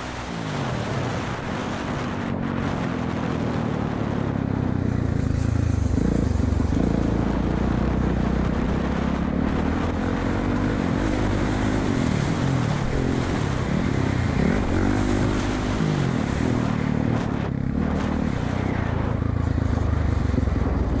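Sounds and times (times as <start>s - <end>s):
wind on microphone: 0.0s - 21.0s
dirt bike engine revving: 5.0s - 8.0s, 9.4s - 21.0s.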